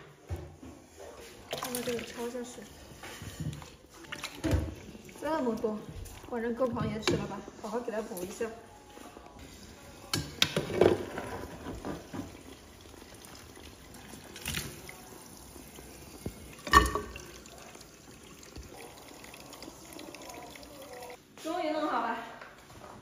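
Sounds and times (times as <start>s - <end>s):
tap water pouring into metal pot: 10.0s - 21.2s.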